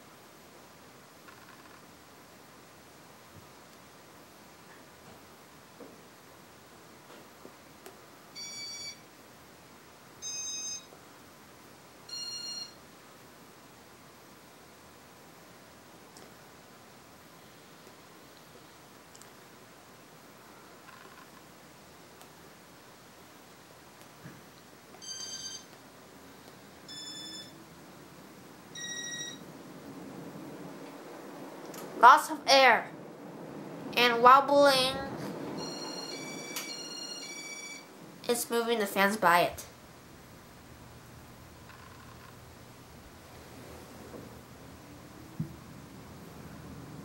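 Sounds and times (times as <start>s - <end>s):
faint fan hum: 0.0s - 47.0s
short electronic beeps: 26.9s - 27.6s, 28.8s - 29.4s
ceiling fan whoosh: 27.6s - 36.8s, 42.4s - 47.0s.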